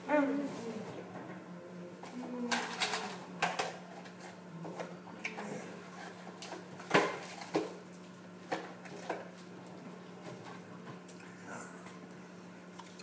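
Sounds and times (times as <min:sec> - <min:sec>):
utensils and dishes clattering: 0:02.5 - 0:04.3.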